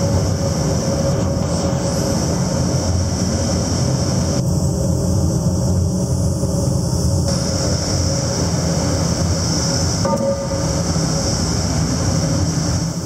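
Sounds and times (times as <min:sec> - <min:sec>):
forging press machinery droning: 0:00.0 - 0:13.0
brief high tone: 0:10.1 - 0:11.0.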